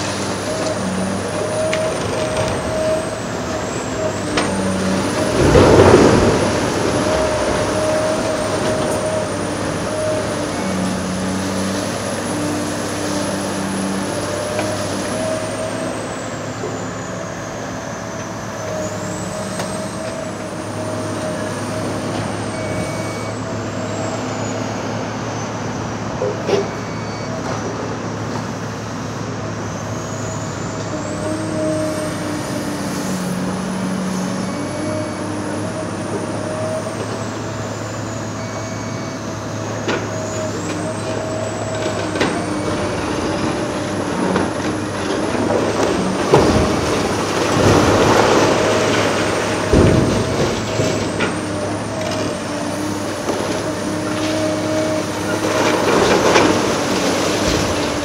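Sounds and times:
excavator diesel engine: 0.0s - 58.0s
demolition debris cracking: 0.5s - 12.7s, 41.0s - 58.0s.

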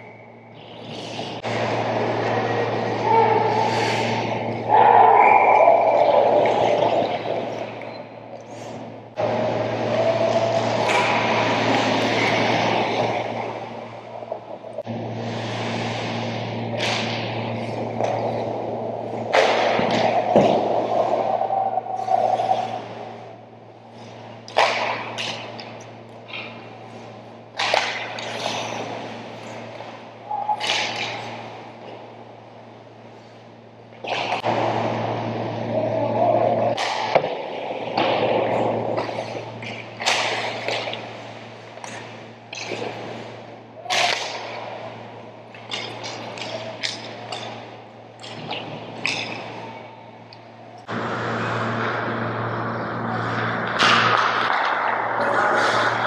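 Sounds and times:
arena hum: 0.0s - 56.0s
skates scraping ice: 0.6s - 7.9s, 8.6s - 14.5s, 15.2s - 23.3s, 27.6s - 32.1s, 35.9s - 44.8s
skates scraping on ice: 9.5s - 14.0s
hockey stick hitting puck: 10.6s - 13.7s, 16.7s - 18.6s, 19.2s - 21.0s, 24.5s - 25.7s, 27.6s - 28.8s, 30.5s - 31.4s, 36.7s - 41.2s, 43.8s - 44.7s, 45.6s - 49.6s, 53.2s - 56.0s.

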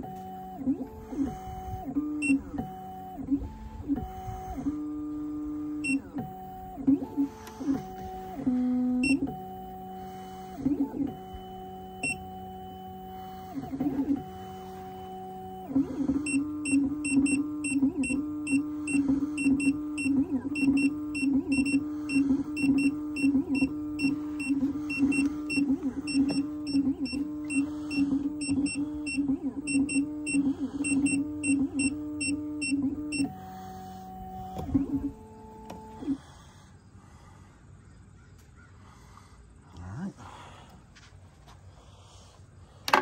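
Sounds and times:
machine motors whining: 0.0s - 37.4s.

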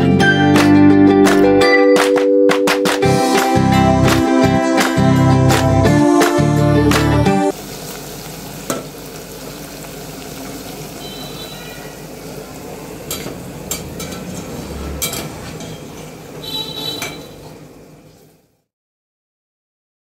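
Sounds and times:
food deep-frying in hot oil: 7.5s - 18.6s
spoon knocking against pan: 16.7s - 17.3s.

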